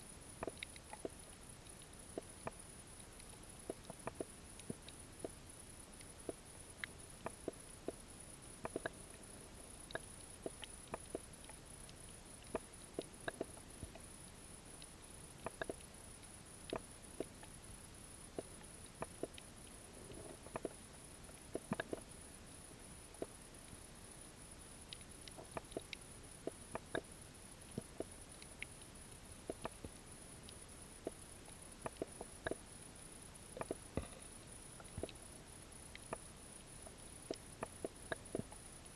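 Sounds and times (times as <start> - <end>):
steady hiss: 0.0 - 38.9
underwater clicks and snaps: 3.2 - 5.4, 8.6 - 9.0, 9.9 - 14.0, 14.8 - 15.9, 16.6 - 17.5, 21.4 - 22.1, 25.0 - 27.1, 29.5 - 30.0, 31.8 - 32.6, 33.6 - 34.2, 34.8 - 35.2.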